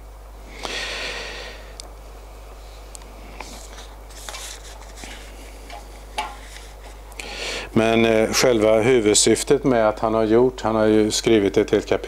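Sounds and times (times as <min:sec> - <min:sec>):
steady low hum: 0:00.0 - 0:12.0
paper rustling: 0:03.4 - 0:07.0.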